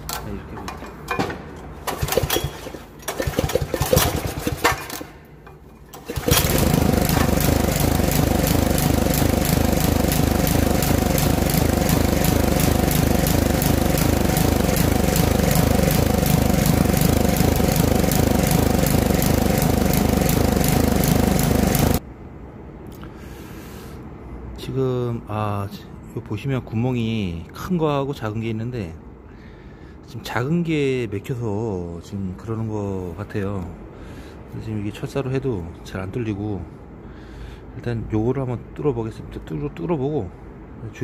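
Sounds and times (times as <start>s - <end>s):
engine clattering: 1.8s - 5.2s, 5.9s - 22.0s
small petrol engine running: 1.9s - 5.1s, 6.0s - 22.0s.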